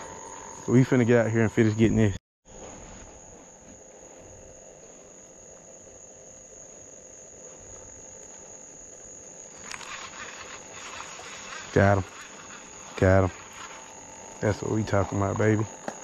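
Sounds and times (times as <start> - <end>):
crickets chirring: 0.0 - 16.0
handling rustle: 9.5 - 15.1.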